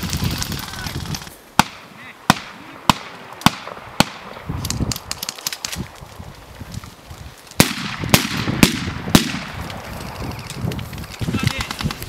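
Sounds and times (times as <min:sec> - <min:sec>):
loud gunshots: 0:01.6 - 0:04.3, 0:07.6 - 0:09.6
gunfire cracks: 0:01.6 - 0:05.8, 0:07.6 - 0:09.6.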